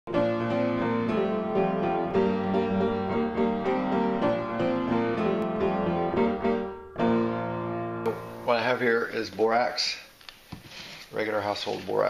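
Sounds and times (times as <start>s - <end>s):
piano melody over chords: 0.1s - 9.6s.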